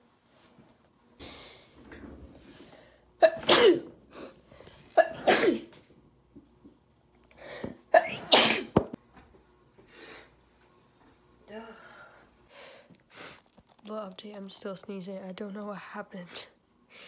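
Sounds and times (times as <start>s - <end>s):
girl sneezing: 3.2s - 3.9s, 5.0s - 5.7s, 8.0s - 8.8s.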